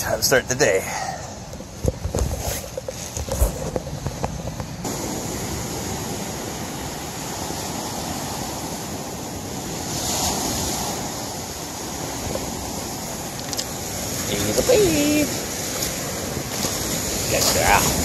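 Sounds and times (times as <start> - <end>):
small waves on cobble beach: 2.6 - 18.0.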